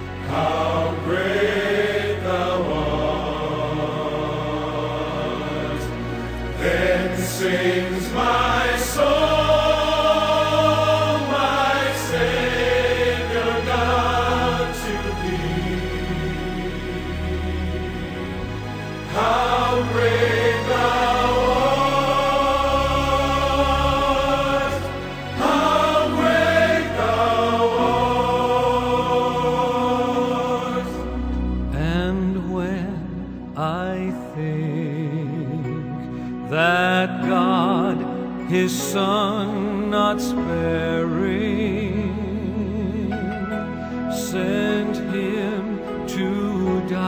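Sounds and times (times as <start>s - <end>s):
choir voices holding chords: 0.0s - 47.0s.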